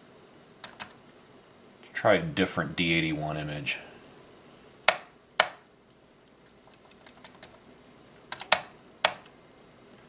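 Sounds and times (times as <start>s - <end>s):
computer keyboard keystrokes: 0.6s - 1.0s, 6.7s - 7.6s, 8.3s - 9.3s.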